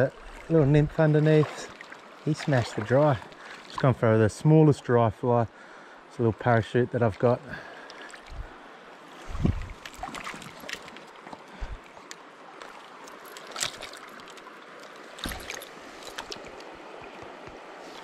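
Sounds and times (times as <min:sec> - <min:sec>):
river water running: 0:00.0 - 0:18.0.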